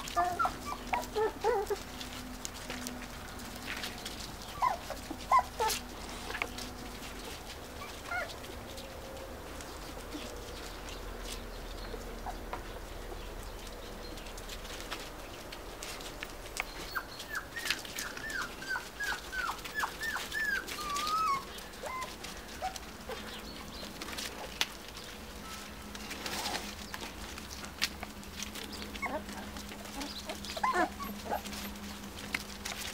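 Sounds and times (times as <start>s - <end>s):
puppy whimpering: 0.0s - 2.1s, 4.1s - 6.6s, 7.8s - 8.6s, 16.8s - 23.4s, 28.8s - 32.5s
small feet on dry leaves: 0.0s - 32.9s.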